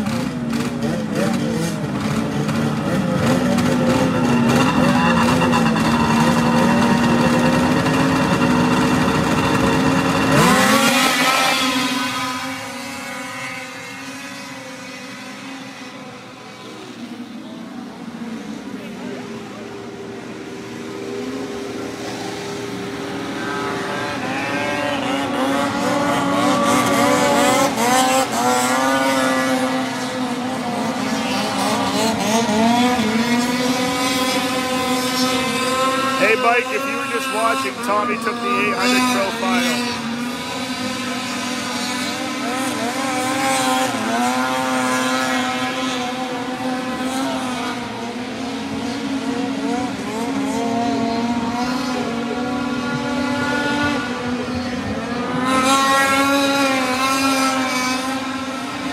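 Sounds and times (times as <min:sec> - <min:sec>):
racing boat engines whining: 0:00.0 - 0:58.9
low engine drone: 0:01.8 - 0:13.0, 0:34.4 - 0:40.6.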